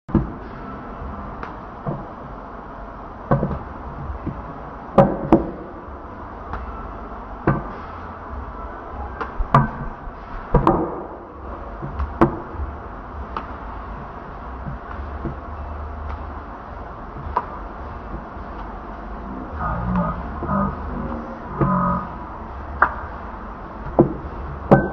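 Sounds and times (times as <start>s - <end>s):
low hum: 11.2s - 24.9s.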